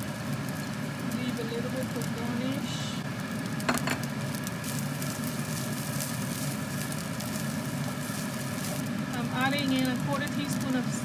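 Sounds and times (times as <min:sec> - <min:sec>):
rice sizzling in a frying pan: 0:00.0 - 0:11.0
spatula stirring in a pan: 0:04.6 - 0:10.3.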